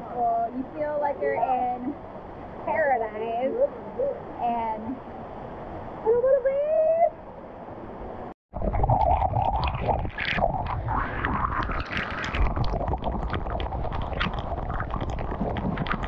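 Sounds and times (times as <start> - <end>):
waterfall splashing on camera: 8.8 - 16.0.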